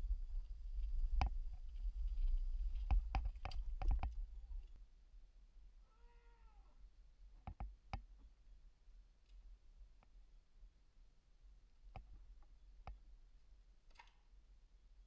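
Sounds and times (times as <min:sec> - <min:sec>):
sharp clicks and knocks: 0:02.8 - 0:04.2, 0:13.9 - 0:14.2.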